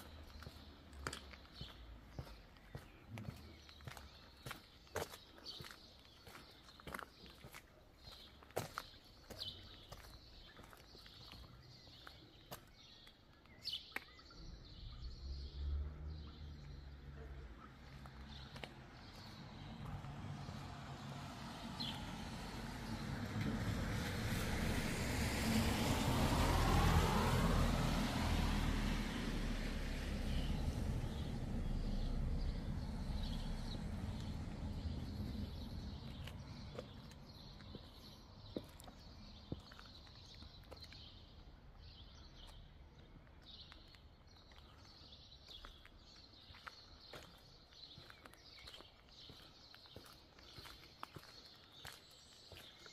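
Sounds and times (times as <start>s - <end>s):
footsteps on paving: 0.0s - 14.6s, 17.3s - 23.0s, 31.1s - 52.9s
birds chirping: 0.0s - 23.4s, 28.5s - 52.9s
low rumble: 19.4s - 37.7s.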